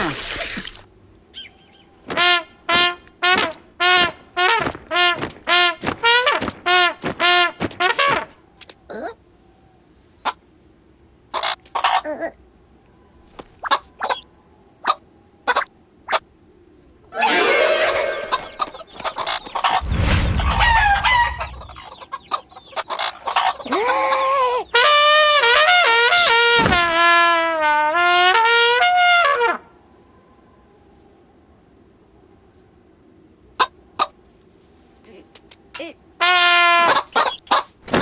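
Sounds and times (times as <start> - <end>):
noisy rush with squawks: 17.1 - 25.2
long rooster crow: 20.6 - 21.5.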